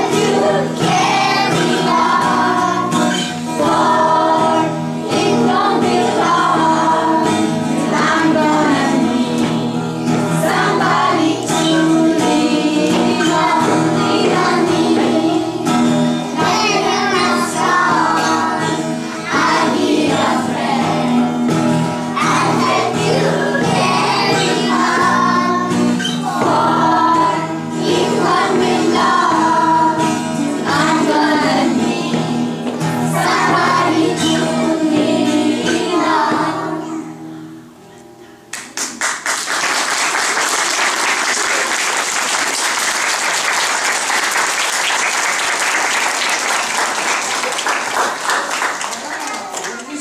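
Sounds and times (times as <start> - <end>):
children singing: 0.0 - 37.2
audience applauding: 38.6 - 50.0.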